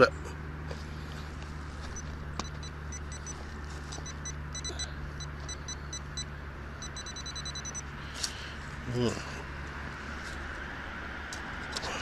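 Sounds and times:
metal detector beeping: 1.9 - 7.9.

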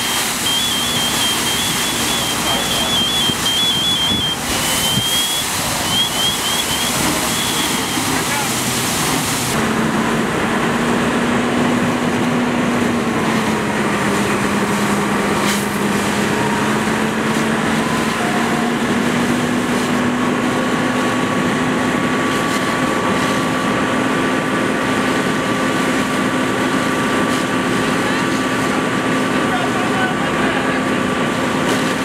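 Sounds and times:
hiss of water spray and fire: 0.0 - 9.6
fire engine diesel droning: 0.0 - 32.0.

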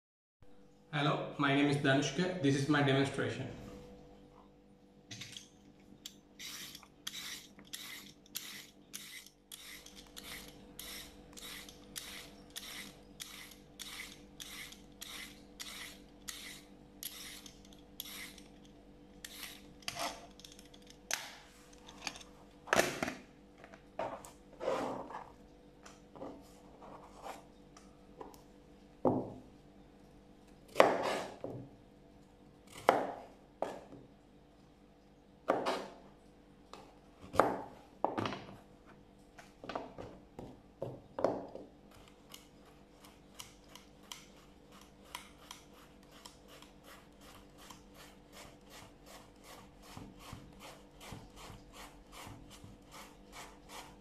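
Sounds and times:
peeler scraping carrot: 6.4 - 18.6, 19.2 - 20.4, 42.0 - 54.0
knife cutting on cutting board: 30.7 - 31.4.

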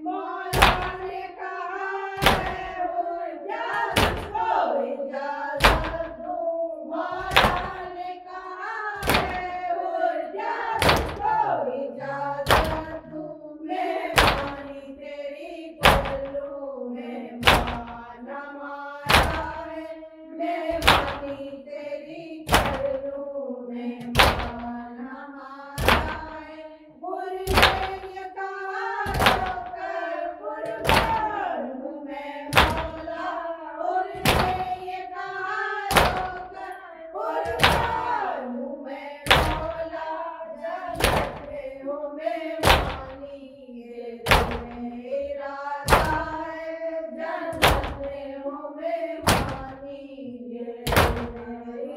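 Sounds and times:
person chanting a lament: 0.0 - 51.9
mourners striking chests in unison: 0.5 - 1.2, 2.2 - 2.8, 3.7 - 4.6, 5.6 - 6.2, 7.2 - 8.0, 9.0 - 9.7, 10.5 - 13.1, 13.9 - 14.8, 15.8 - 16.4, 17.4 - 18.2, 19.0 - 19.8, 20.7 - 21.5, 22.5 - 23.1, 24.0 - 25.0, 25.8 - 26.4, 27.4 - 28.2, 29.0 - 30.0, 30.6 - 31.4, 32.5 - 33.3, 34.1 - 35.0, 35.9 - 36.7, 37.4 - 38.3, 39.2 - 40.0, 40.9 - 41.7, 42.6 - 43.3, 44.2 - 45.0, 45.9 - 46.6, 47.5 - 48.3, 49.2 - 49.8, 50.8 - 51.6.

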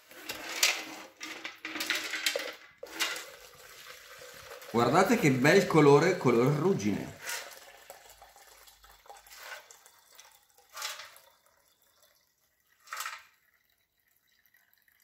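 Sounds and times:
liquid pouring into plastic beaker: 2.7 - 15.0.

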